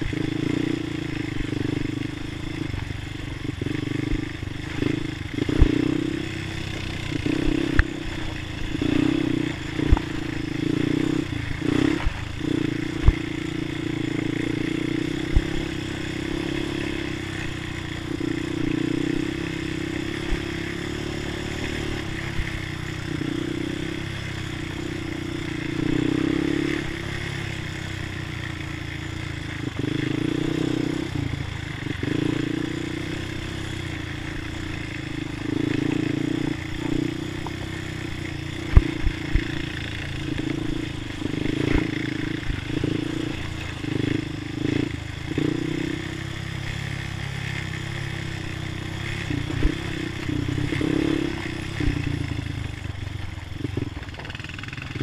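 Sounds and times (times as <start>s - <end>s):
atv engine running: 0.0s - 55.0s
knocks and rattles over bumps: 53.7s - 55.0s.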